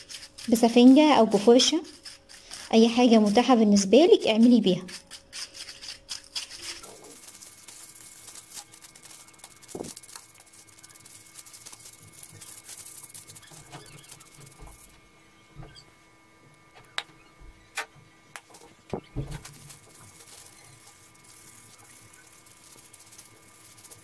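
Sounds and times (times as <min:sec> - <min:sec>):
stick scraping paint in foam tray: 0:00.0 - 0:15.0.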